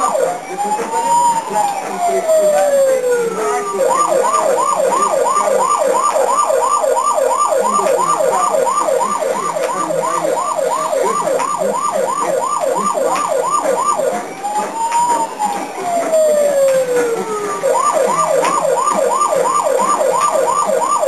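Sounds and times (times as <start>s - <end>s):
electronic siren wailing and yelping: 0.0s - 21.0s.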